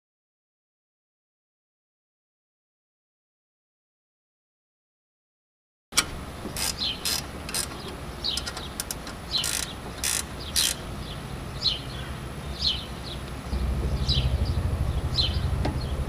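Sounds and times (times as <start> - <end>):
wrench rasping on metal nut: 6.0 - 10.8
bird chirping: 6.4 - 16.0.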